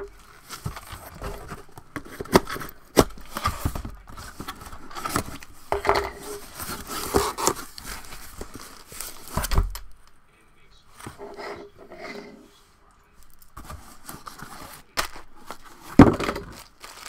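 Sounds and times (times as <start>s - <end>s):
box cutter slitting cardboard: 6.6s - 7.7s.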